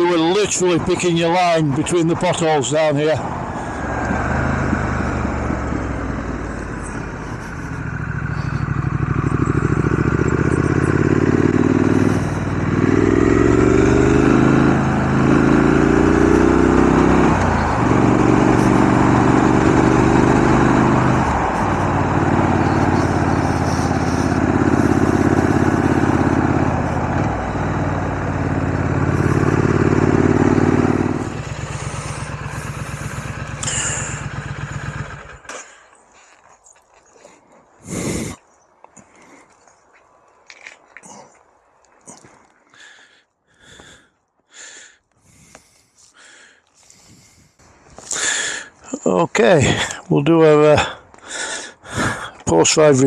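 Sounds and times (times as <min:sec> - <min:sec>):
motorcycle engine under way: 0:00.0 - 0:36.6, 0:37.2 - 0:38.4.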